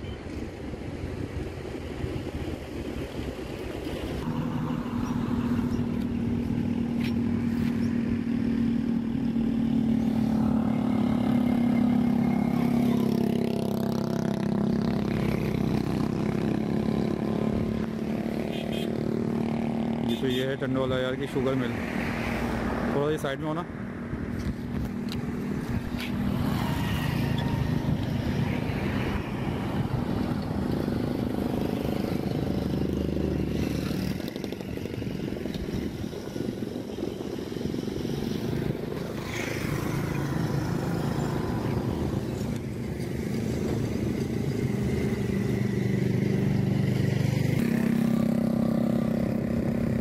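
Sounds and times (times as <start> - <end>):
road noise: 0.0 - 50.0
wind noise: 24.1 - 40.1.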